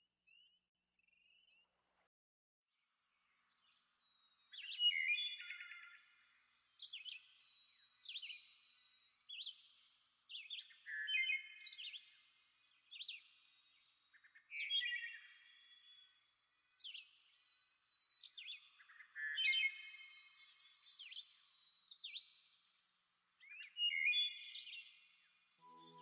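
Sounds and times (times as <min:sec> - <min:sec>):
birds singing: 0:03.6 - 0:26.0.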